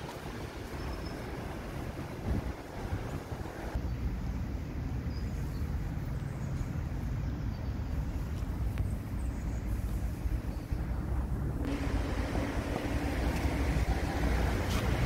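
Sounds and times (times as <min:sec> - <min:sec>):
wind on microphone: 0:00.0 - 0:03.8.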